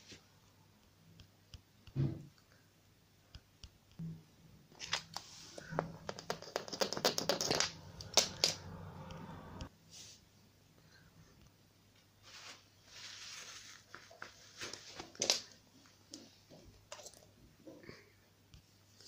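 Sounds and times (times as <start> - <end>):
paper cards rustling and clicking: 4.7 - 8.8, 13.8 - 16.3.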